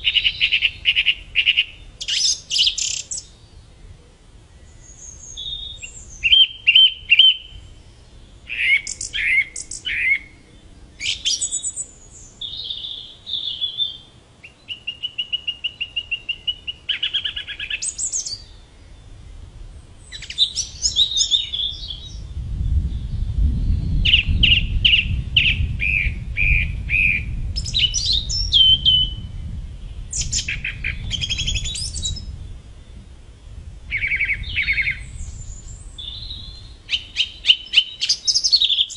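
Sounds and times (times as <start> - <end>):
song thrush singing: 0.0 - 38.9
low rumble: 21.8 - 36.9.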